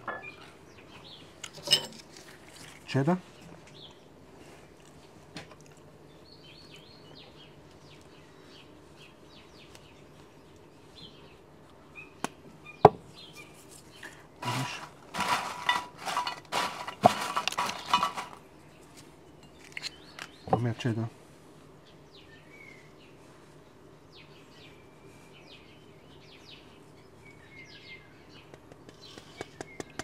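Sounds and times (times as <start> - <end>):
cheese grating on grater: 14.4 - 18.4
chips crunching: 14.4 - 18.4.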